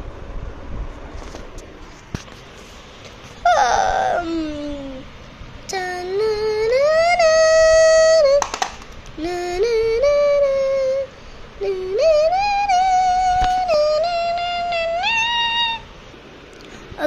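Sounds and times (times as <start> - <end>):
high voice singing wordless tune: 3.4 - 8.4, 9.1 - 15.9.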